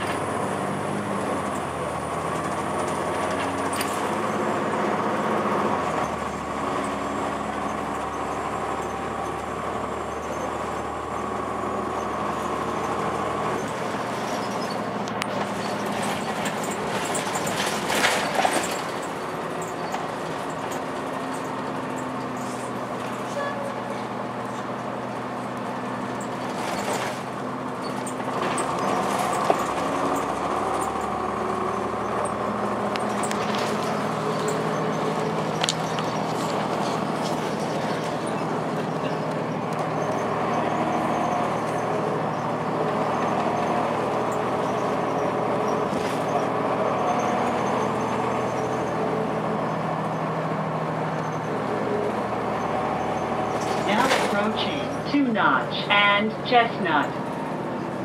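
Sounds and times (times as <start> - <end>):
bus engine drone with whine: 0.0 - 58.0
road noise: 0.0 - 58.0.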